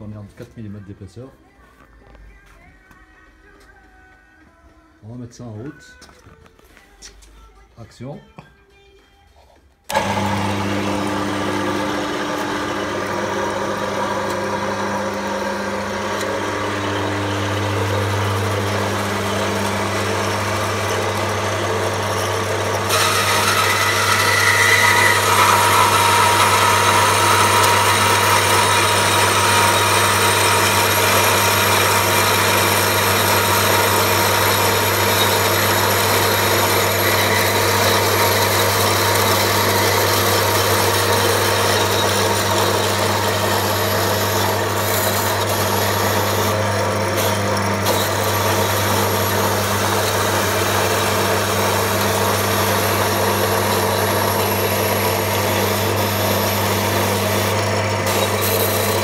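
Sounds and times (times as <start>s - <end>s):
band saw motor humming: 9.9s - 59.0s
saw blade cutting steel: 22.8s - 59.0s.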